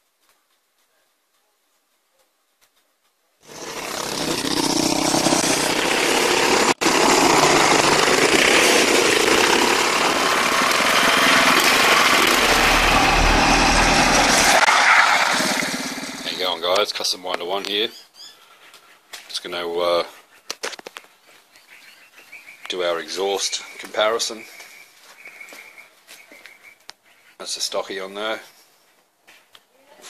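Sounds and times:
small petrol engines running: 3.4s - 16.4s.

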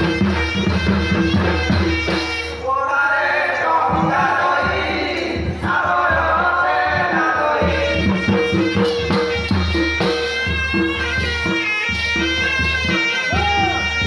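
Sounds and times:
barrel drum: 0.0s - 2.6s, 3.9s - 14.0s
people singing into microphones: 2.6s - 8.8s
instrumental melody: 7.7s - 14.0s.

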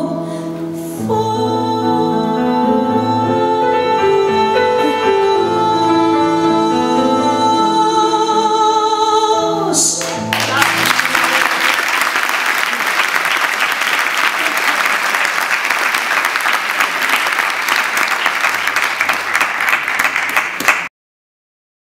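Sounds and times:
audience applauding: 10.0s - 20.9s.

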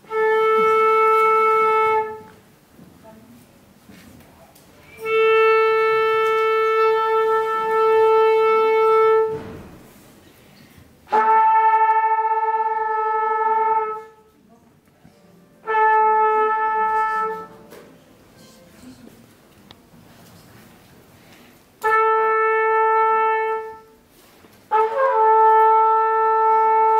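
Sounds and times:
trumpets and saxophones tuning: 0.0s - 2.4s, 4.9s - 9.4s, 11.1s - 14.4s, 15.5s - 17.7s, 21.8s - 24.0s, 24.7s - 26.9s.

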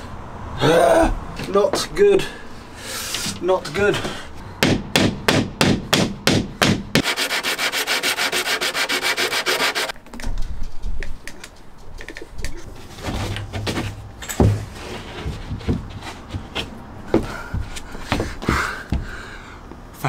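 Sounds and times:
hammer knocking wood block: 4.6s - 7.1s
fast rasping strokes: 7.0s - 10.0s
heavy thud: 13.1s - 19.2s.

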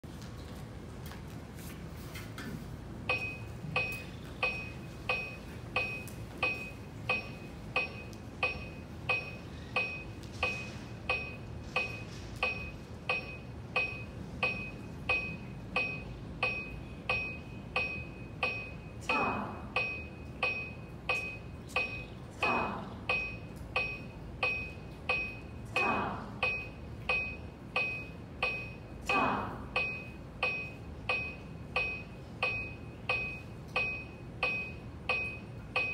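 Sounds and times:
electronic metronome clicks: 3.1s - 18.7s, 19.8s - 22.1s, 26.4s - 28.8s, 29.8s - 35.9s.

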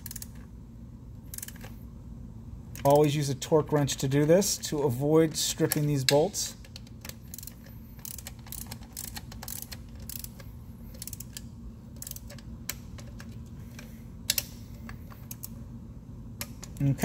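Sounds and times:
torque wrench ratcheting clicks: 0.0s - 0.4s, 1.3s - 1.7s, 5.7s - 13.4s.

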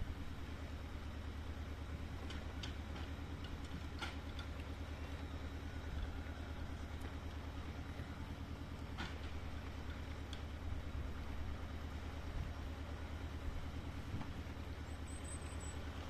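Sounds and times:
engine running: 0.0s - 16.0s.

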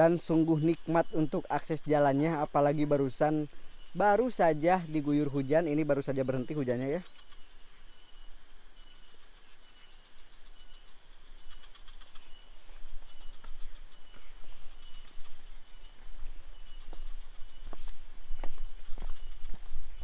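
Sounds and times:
insects chirping: 0.0s - 20.0s
footsteps on wet path: 14.6s - 20.0s.

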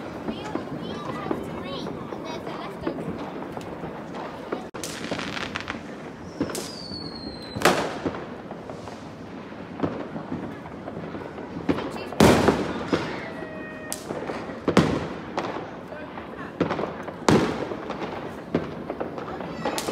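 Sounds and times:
firework bangs: 0.0s - 19.9s
small firework pops: 2.8s - 19.9s
whistling rocket falling in pitch: 5.1s - 7.8s.

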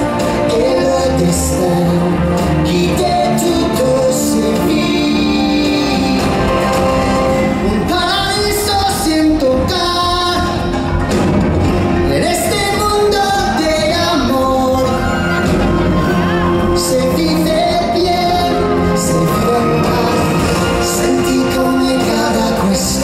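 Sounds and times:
loud show music with singing: 0.0s - 23.0s.

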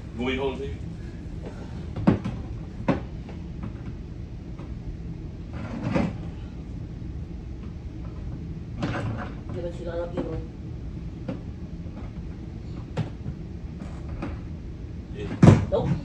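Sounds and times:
low steady rumble: 0.0s - 16.0s.

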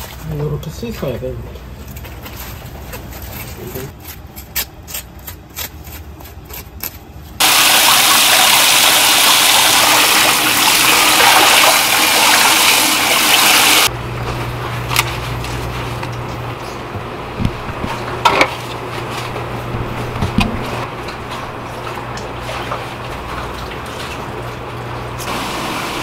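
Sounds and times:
water gushing from a tap: 7.4s - 13.9s
steady low hum: 13.9s - 25.4s.

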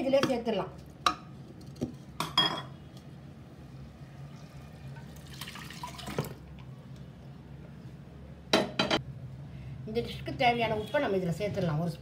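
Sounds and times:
wet food pouring and splashing: 4.9s - 6.4s.

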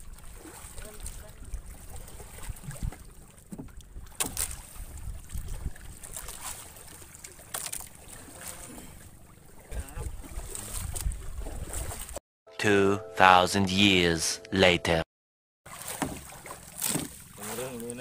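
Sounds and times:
wind buffeting microphone: 4.7s - 6.0s, 9.7s - 12.2s.

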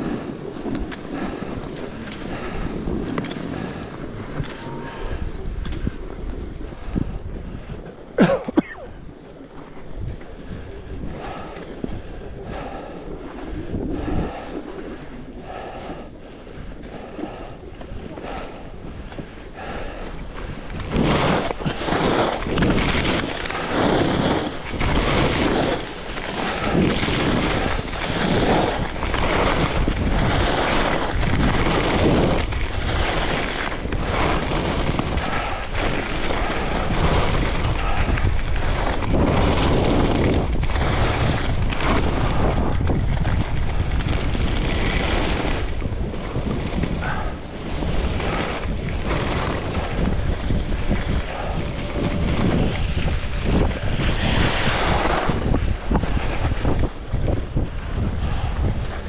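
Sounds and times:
wind rushing over microphone: 0.0s - 59.0s
skis hissing on snow: 19.4s - 56.8s.

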